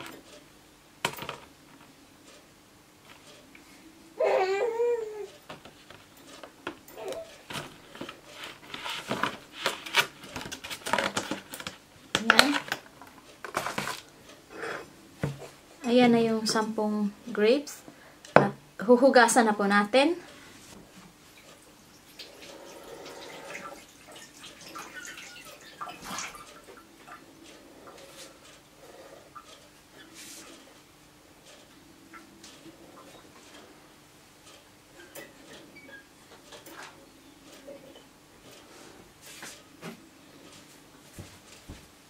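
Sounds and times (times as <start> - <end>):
plastic rustling: 7.0 - 14.1
plastic container crackling: 7.5 - 12.8
water running at a sink: 21.8 - 26.8
water drips and splashes: 23.1 - 27.2.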